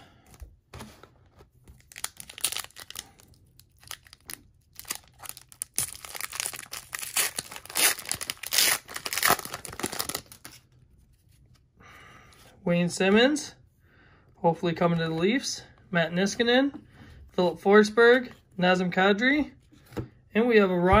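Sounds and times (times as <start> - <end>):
foil wrapper crinkling and ripping: 1.7 - 10.6.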